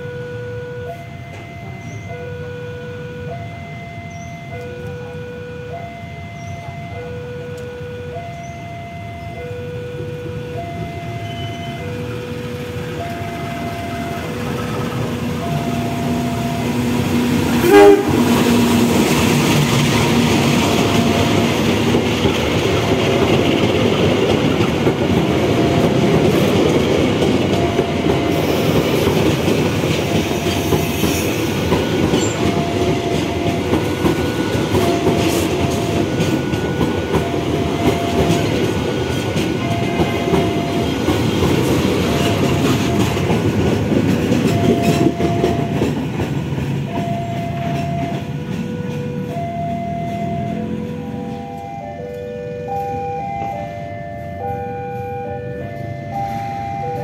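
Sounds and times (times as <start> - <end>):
faint warning tone beeping: 0.0 - 16.9, 31.2 - 41.2, 44.4 - 45.8, 46.9 - 55.5
train wheel clatter: 11.2 - 51.2
locomotive horn blast: 15.2 - 21.4.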